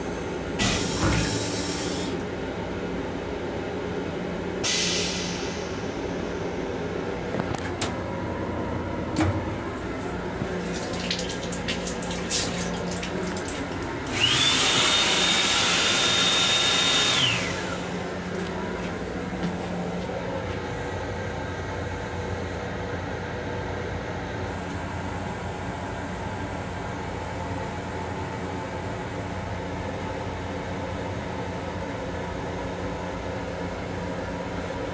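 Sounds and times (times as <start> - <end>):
train hum: 0.0 - 34.9
toilet flushing with whine: 0.5 - 2.4, 4.6 - 6.3, 9.0 - 19.4.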